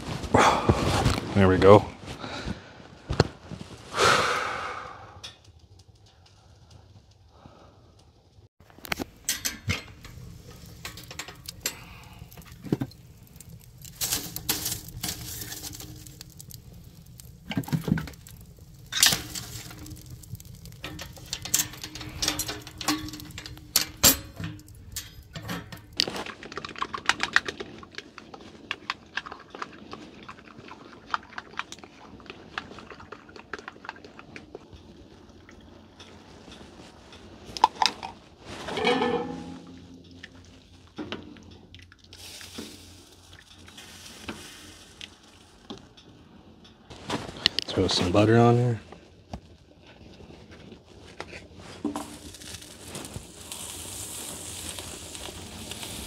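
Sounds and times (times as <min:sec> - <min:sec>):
knocks and clanks of metal cookware: 0:08.9 - 0:11.8, 0:20.8 - 0:26.0, 0:37.6 - 0:40.4.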